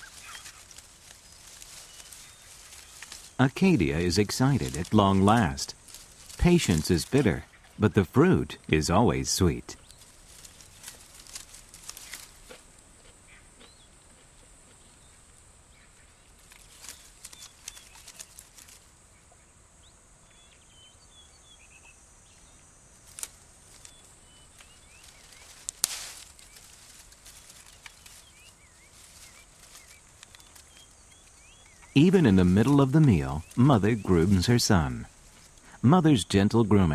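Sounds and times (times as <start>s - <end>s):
twigs snapping: 0.0s - 3.4s, 4.0s - 7.6s, 9.8s - 14.3s, 16.4s - 18.9s, 23.0s - 33.6s
faint bird chirps: 0.0s - 5.6s, 14.8s - 22.6s, 23.7s - 36.1s
steady high hiss: 0.0s - 13.4s, 14.4s - 36.9s
leaves rustling: 0.0s - 19.5s, 22.2s - 36.9s.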